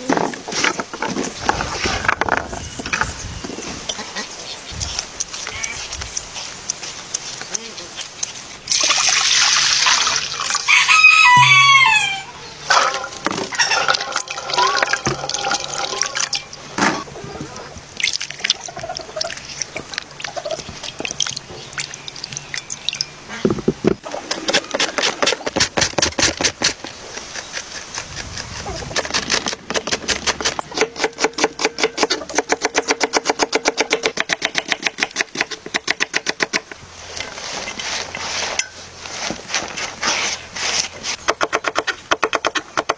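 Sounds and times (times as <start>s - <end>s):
rooster crowing: 10.6s - 12.4s.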